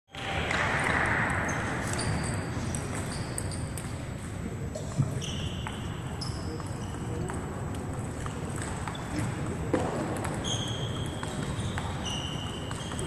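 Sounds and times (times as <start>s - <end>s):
sports hall ambience: 0.1s - 13.0s
table tennis balls clicking: 6.5s - 13.0s.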